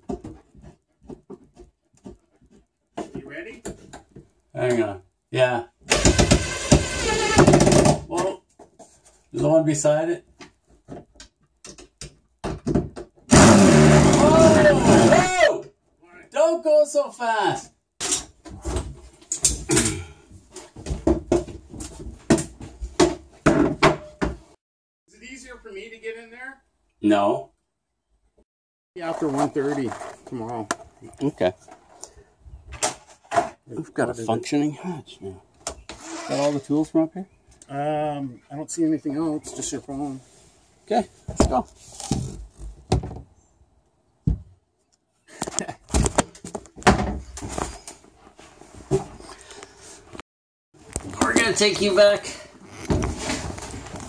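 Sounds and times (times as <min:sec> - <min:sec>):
knocks and bumps: 0:00.0 - 0:04.4, 0:05.9 - 0:09.0, 0:10.3 - 0:15.2, 0:20.6 - 0:24.6, 0:41.3 - 0:43.3, 0:44.2 - 0:44.6
thump: 0:42.9 - 0:43.3, 0:44.2 - 0:44.5, 0:45.9 - 0:47.7.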